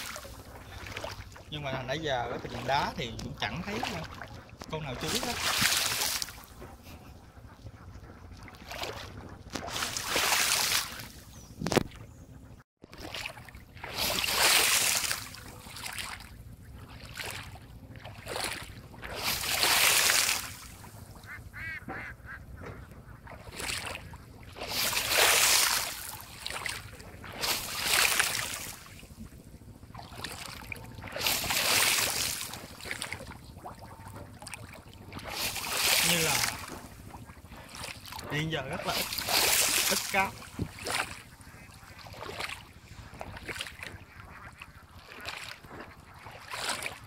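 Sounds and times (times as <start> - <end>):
feet kicking water splashes: 0.0 - 12.0, 12.8 - 47.0
ducks quacking: 21.1 - 24.0, 37.7 - 42.4, 43.9 - 45.7.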